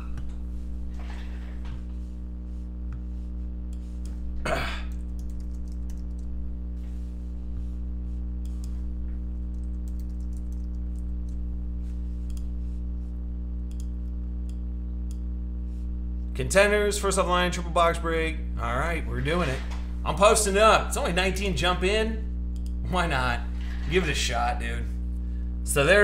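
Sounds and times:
steady low hum: 0:00.0 - 0:26.0
keyboard typing: 0:04.9 - 0:06.4, 0:09.4 - 0:11.4.

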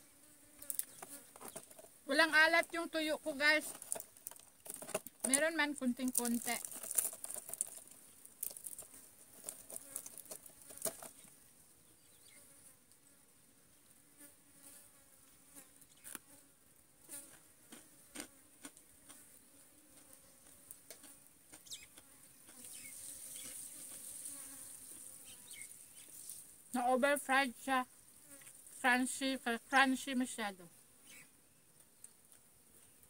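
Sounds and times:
high-pitched insect buzzing: 0:00.4 - 0:01.6, 0:22.5 - 0:30.3
crunchy chewing clicks: 0:17.1 - 0:19.2, 0:19.9 - 0:22.7.

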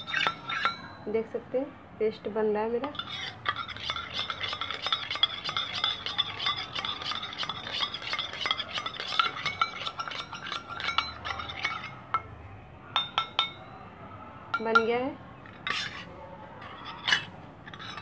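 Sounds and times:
spoon tapping on bowl: 0:00.0 - 0:00.9, 0:02.8 - 0:12.4, 0:13.0 - 0:13.6, 0:14.6 - 0:15.1
metal spoon stirring in a metal bowl: 0:00.0 - 0:01.3, 0:02.7 - 0:12.4, 0:13.0 - 0:13.6, 0:14.5 - 0:18.0.

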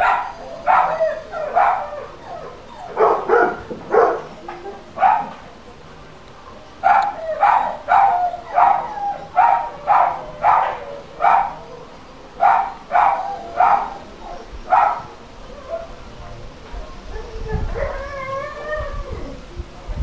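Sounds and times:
dog barking: 0:00.0 - 0:01.8, 0:03.0 - 0:04.3, 0:05.0 - 0:05.3, 0:06.8 - 0:08.8, 0:09.4 - 0:11.6, 0:12.4 - 0:14.0, 0:14.7 - 0:15.1.

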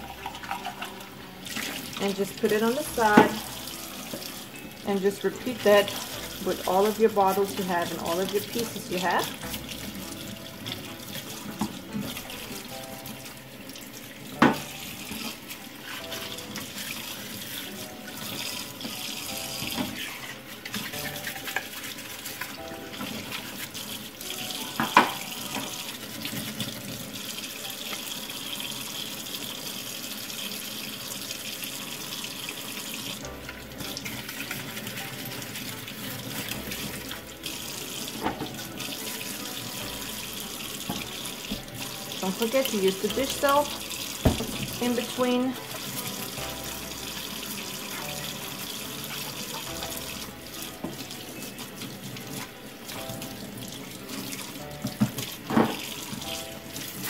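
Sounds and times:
tap running into steel sink: 0:44.2 - 0:44.8.

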